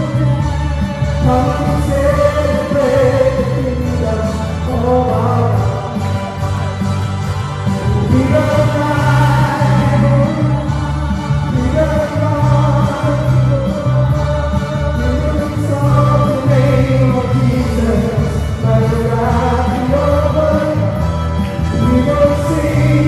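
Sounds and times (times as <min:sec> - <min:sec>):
electric bass guitar: 0:00.0 - 0:23.0
voices singing together: 0:07.7 - 0:23.0.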